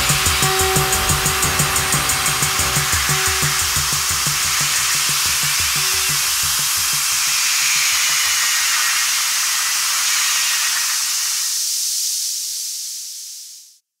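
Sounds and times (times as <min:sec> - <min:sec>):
electronic beat pulses: 0:00.0 - 0:09.3
synthesizer white noise hiss: 0:00.0 - 0:13.8.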